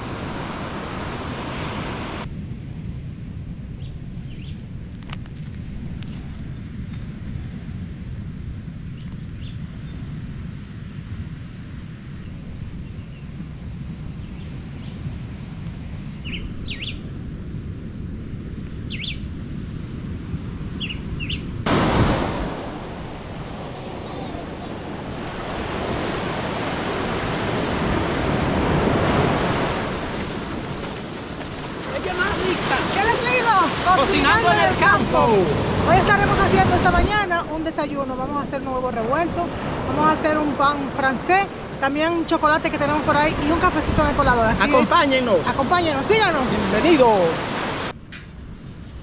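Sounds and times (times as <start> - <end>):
surf: 0.0 - 2.3, 21.6 - 48.0
wind rumble: 0.0 - 49.0.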